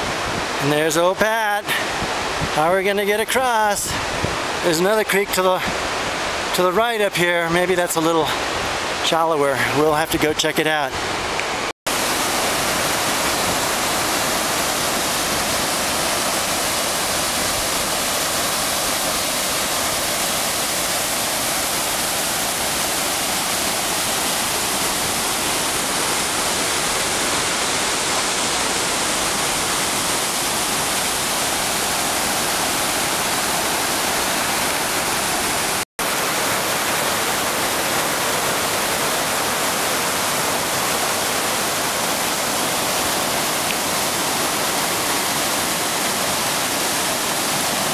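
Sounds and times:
creek rushing over rocks: 0.0s - 47.9s.

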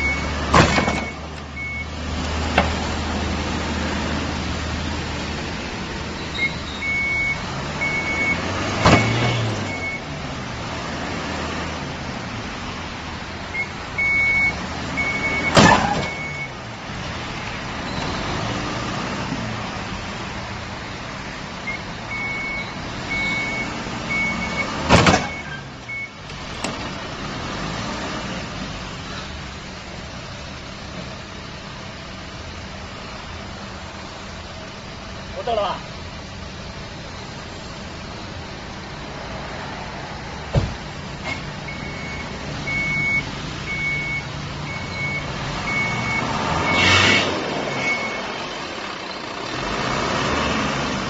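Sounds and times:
high electronic warning beeping: 0.0s - 1.9s, 6.2s - 8.4s, 13.5s - 16.5s, 21.7s - 26.1s, 41.3s - 46.9s, 47.7s - 48.3s
loud vehicle impacts: 0.0s - 3.2s, 6.4s - 10.1s, 15.1s - 16.4s, 23.4s - 27.0s, 40.4s - 42.3s
truck engine running: 47.3s - 51.0s.

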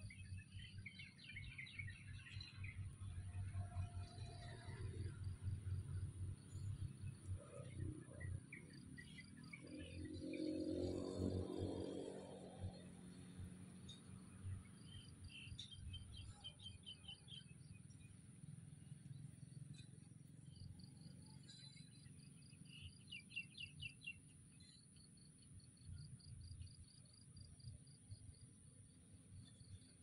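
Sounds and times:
insect chirping: 4.1s - 30.0s
bird chirps: 13.9s - 18.2s, 20.5s - 25.1s.

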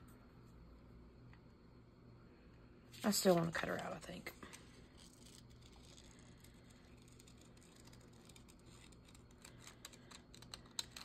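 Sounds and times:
faint low hum: 0.0s - 11.0s
scissors snipping paper: 6.8s - 11.0s.

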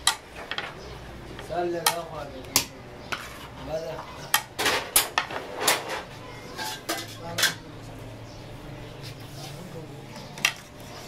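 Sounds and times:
metal spoon clanking on pots: 0.0s - 0.8s, 1.4s - 3.6s, 4.2s - 7.7s.

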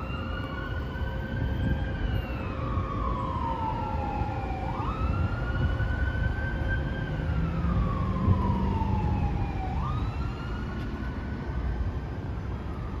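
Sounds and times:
emergency vehicle siren wailing: 0.0s - 13.0s
low rumble of traffic: 0.0s - 13.0s.

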